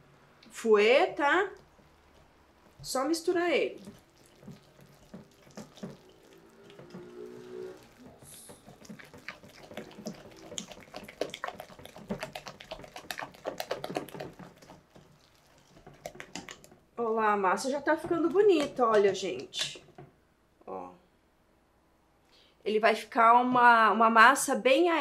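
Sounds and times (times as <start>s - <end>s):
wet batter slapping: 1.4s - 20.1s.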